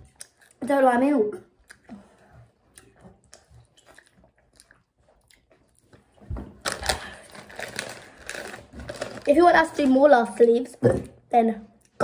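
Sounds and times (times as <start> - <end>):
chips being crunched and chewed: 6.6 - 9.4
foil bag crinkling: 6.6 - 10.0.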